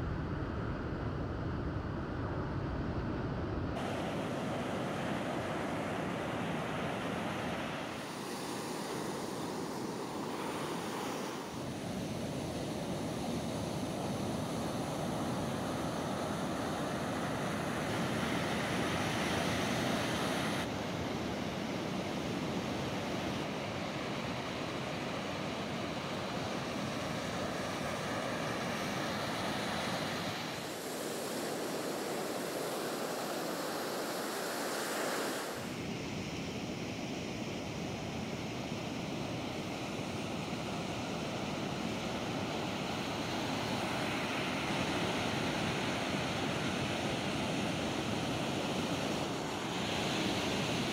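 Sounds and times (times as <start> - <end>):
ocean surf breaking on beach: 3.8 - 50.9.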